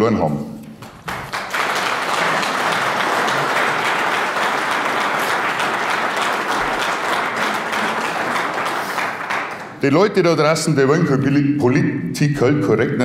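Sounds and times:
audience applauding: 0.8 - 9.9.

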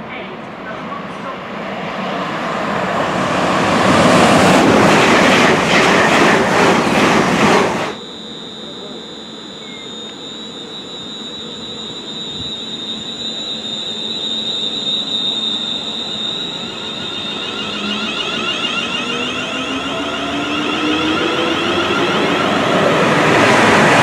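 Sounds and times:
train wheel rumble: 0.0 - 8.0
electric train whine: 0.0 - 24.0.

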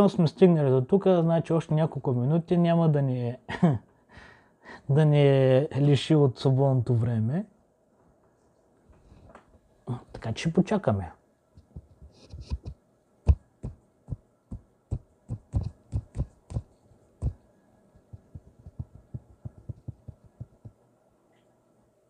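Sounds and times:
faint steady hum: 0.0 - 22.0
low thumps and taps: 11.6 - 17.4, 18.1 - 20.8.

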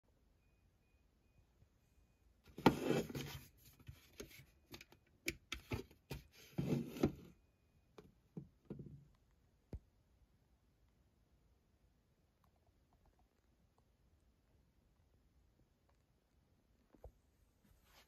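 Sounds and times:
plastic scraping and rubbing: 2.5 - 7.3.

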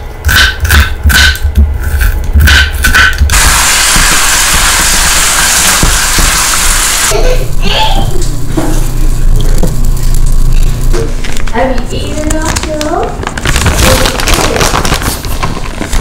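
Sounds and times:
meat sizzling in frying pan: 3.3 - 7.2.

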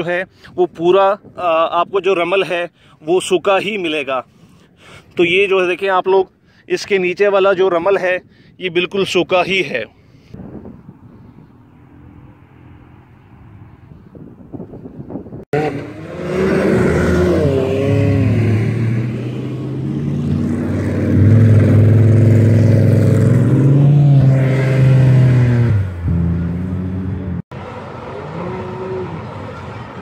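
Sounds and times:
dune buggy engine revving: 15.5 - 30.0.

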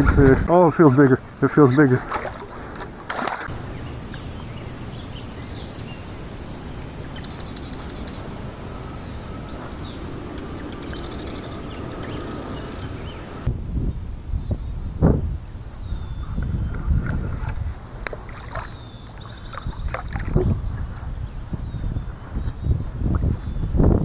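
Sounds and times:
birds chirping: 0.0 - 13.5, 15.8 - 24.0
steady background hiss: 0.0 - 16.1
buzzy bird trills: 3.5 - 13.5.

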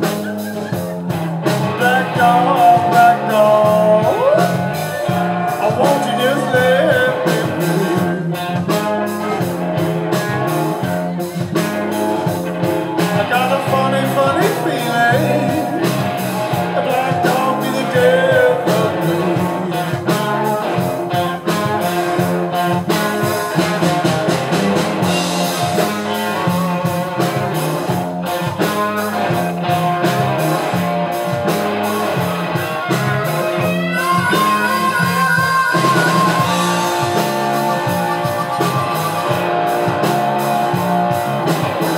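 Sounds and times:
harmonica held notes: 0.0 - 13.0, 32.2 - 41.9
blues-rock band playing: 0.0 - 41.9
electric guitar lead lines: 0.0 - 41.9.

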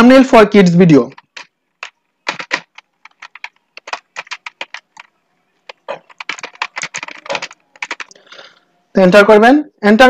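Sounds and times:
computer keyboard typing: 1.0 - 8.4.

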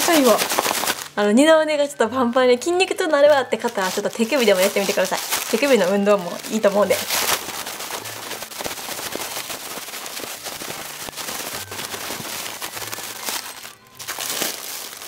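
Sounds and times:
plastic bag crinkling: 0.0 - 1.4, 2.6 - 15.0.

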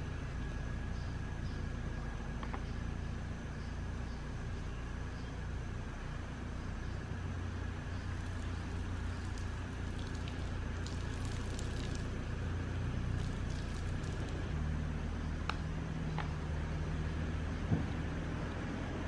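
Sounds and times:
low hum: 0.0 - 19.0
water drips: 8.0 - 12.3, 13.0 - 14.6
water splashing from a tap: 8.1 - 12.2, 13.1 - 14.5.

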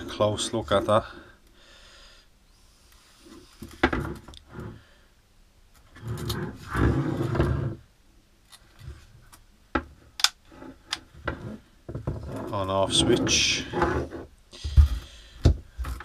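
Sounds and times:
plastic tool handling clicks: 10.2 - 11.0.

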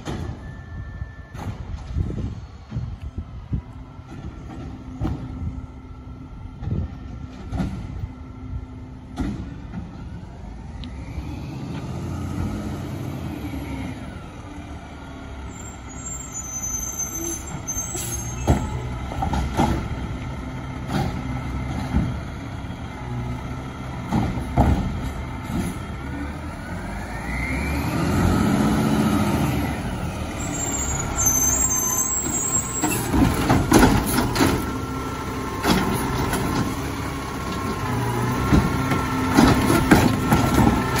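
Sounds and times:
garbage truck engine running: 14.0 - 41.0
hydraulic arm knocks and clunks: 24.0 - 25.8, 32.8 - 34.8, 38.4 - 41.0.

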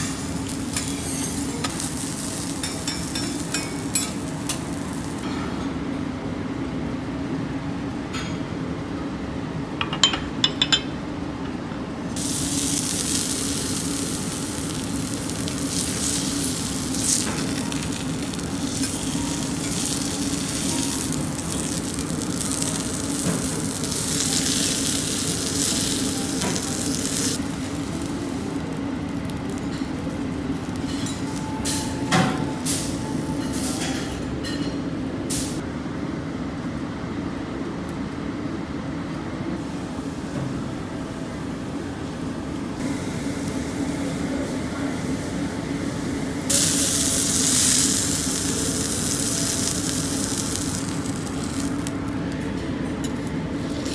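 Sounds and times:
steak sizzling on a griddle: 0.0 - 5.2, 12.2 - 29.9, 46.5 - 52.1.

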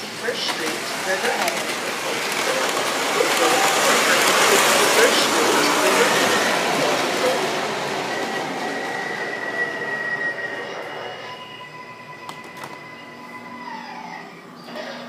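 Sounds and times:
model train rumble: 0.0 - 8.8
high wheel squeal: 3.2 - 15.0.

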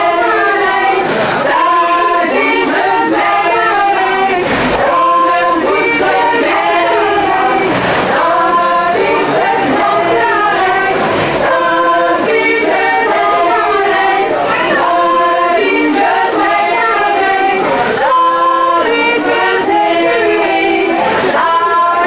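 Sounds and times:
women singing in harmony: 0.0 - 22.0.

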